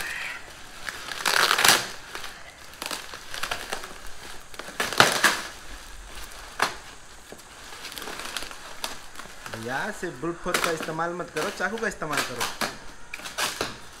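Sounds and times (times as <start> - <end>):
cardboard box ripping: 0.0 - 14.0.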